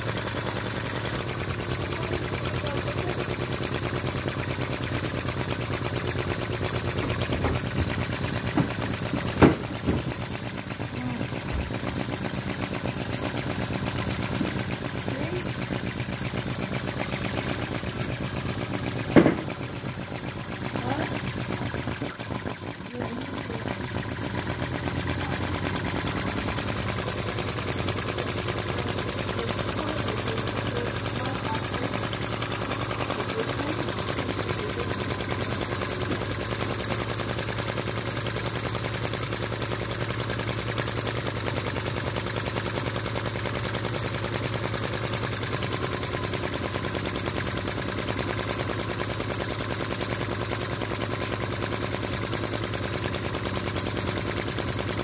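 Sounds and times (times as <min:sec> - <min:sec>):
engine running with fast popping: 0:00.0 - 0:55.0.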